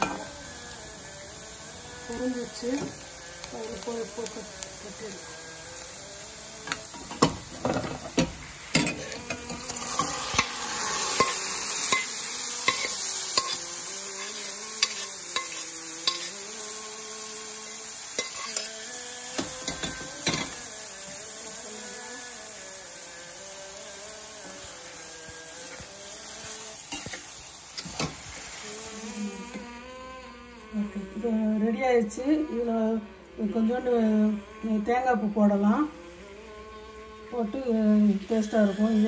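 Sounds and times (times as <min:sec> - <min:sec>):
spoon scraping metal pan: 0:06.6 - 0:16.4, 0:18.1 - 0:18.8, 0:25.6 - 0:28.5.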